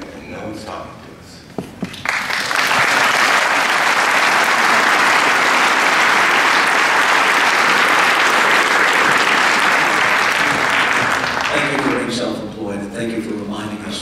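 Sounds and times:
audience applause: 1.9 - 12.2.

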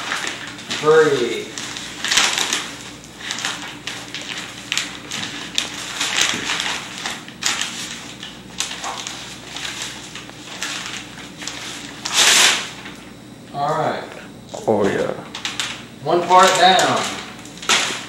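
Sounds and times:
cardboard ripping and rustling: 0.0 - 13.0, 15.3 - 18.0.

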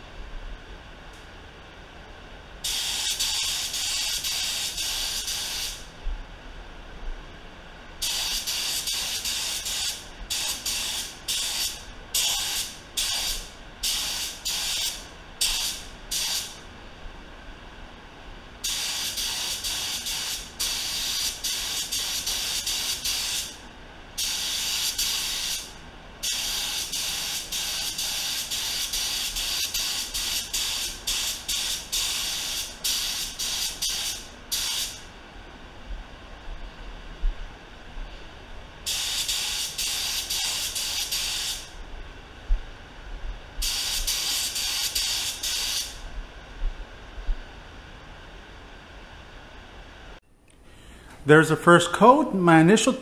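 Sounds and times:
spray gun hissing: 2.7 - 5.9, 8.0 - 16.6, 18.6 - 23.6, 24.2 - 35.0, 38.9 - 41.7, 43.6 - 46.0.

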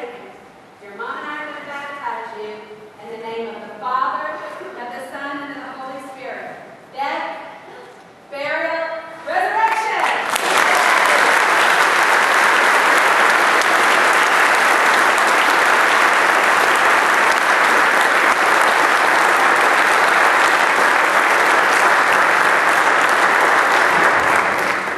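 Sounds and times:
crowd applauding: 9.7 - 24.9.

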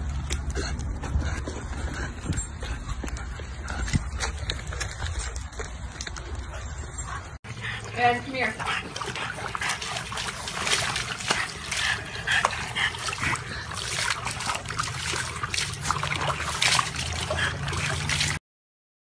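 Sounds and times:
dog splashing water in tub: 7.5 - 18.4.

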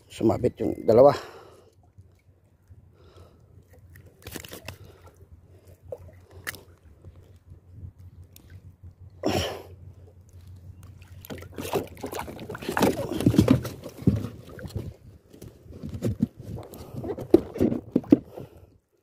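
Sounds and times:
water splashing against boat: 0.0 - 18.8
knocks and rustles on hull: 10.4 - 18.7.

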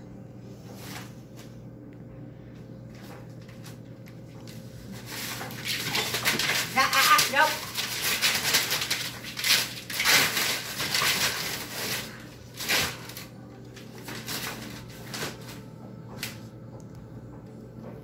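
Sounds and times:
newspaper crumpling and rustling: 4.5 - 15.6
dog scrambling: 5.0 - 13.3.

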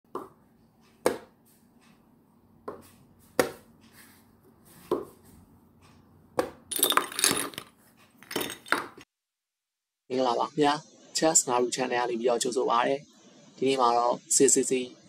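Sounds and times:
sharp knocks: 1.0 - 1.3, 2.6 - 3.7.

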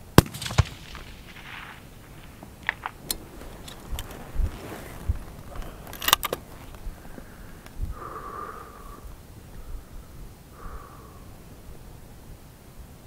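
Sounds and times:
wind thumping on microphone: 0.8 - 8.2
rifle handling clicks and rattles: 2.6 - 4.3, 5.3 - 6.8
faint steady tone: 4.9 - 13.0.

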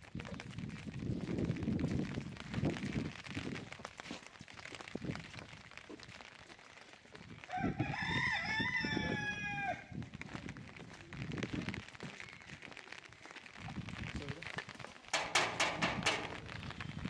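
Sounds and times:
rooster crowing: 7.5 - 9.9
low thumps: 15.2 - 17.0.

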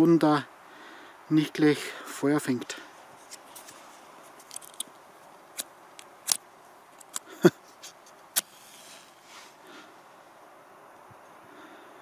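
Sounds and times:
faint wind hiss: 0.0 - 12.0
camping gear clicks and knocks: 3.1 - 8.5.

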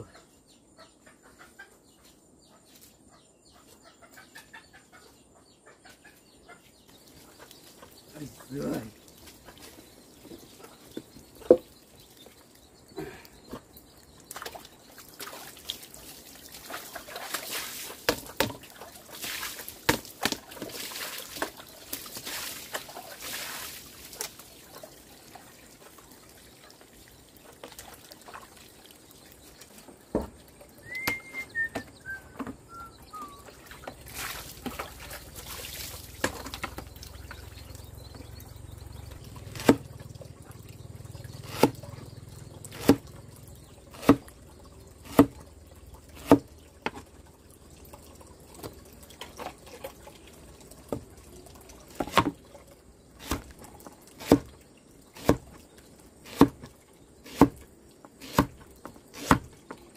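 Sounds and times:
water trickling and pouring: 6.9 - 59.9
bird chirps: 30.7 - 34.4, 36.1 - 45.1.

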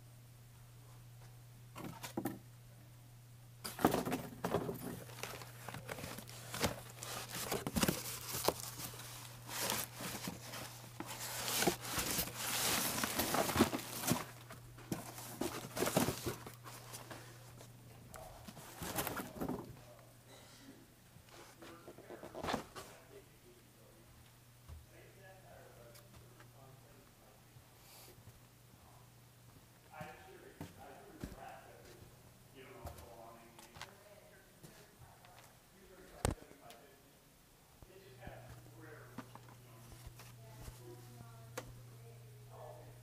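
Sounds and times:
steady low hum: 0.0 - 43.0
rustling and crinkling handling: 3.6 - 20.1, 21.2 - 23.2, 38.2 - 41.8.

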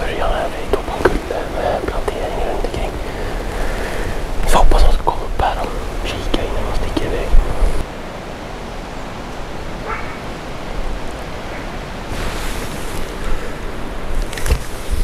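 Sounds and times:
wind rumbling on microphone: 0.0 - 15.0
distant dog barking: 9.8 - 10.4, 11.4 - 11.8.

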